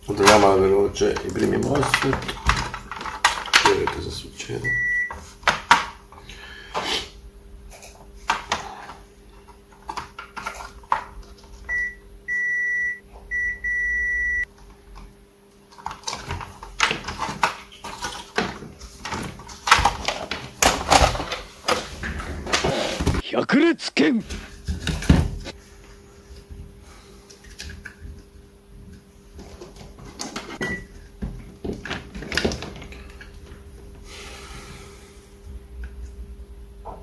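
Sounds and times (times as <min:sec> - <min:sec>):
faint steady hum: 0:00.0 - 0:37.0
multimeter beeping: 0:04.6 - 0:05.2, 0:11.7 - 0:14.5.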